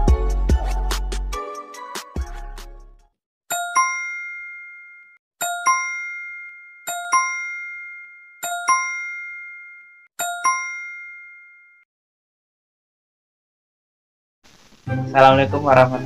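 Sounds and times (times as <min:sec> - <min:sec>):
bell-like ding: 0:03.5 - 0:11.9.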